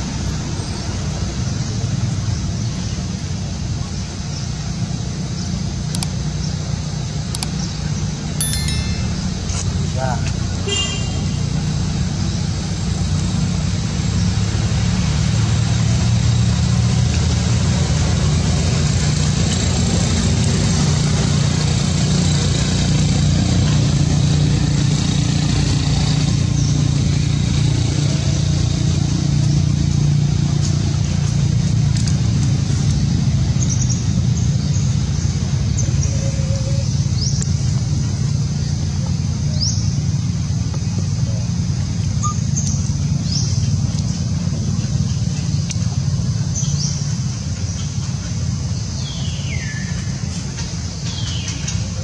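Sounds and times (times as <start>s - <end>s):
traffic rumble: 16.5s - 52.0s.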